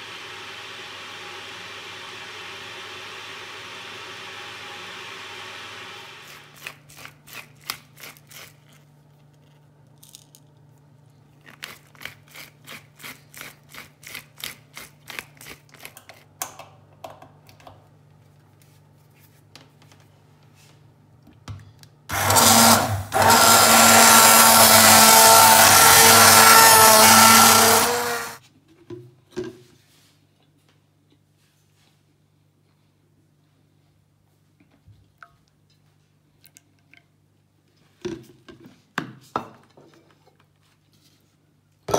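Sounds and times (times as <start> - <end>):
hand blender running: 0.0 - 6.6, 22.1 - 28.4.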